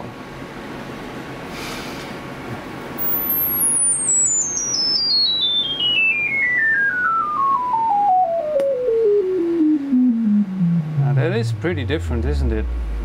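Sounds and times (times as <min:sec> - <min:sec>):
stepped sine tone sweep: 0:03.0 - 0:13.0.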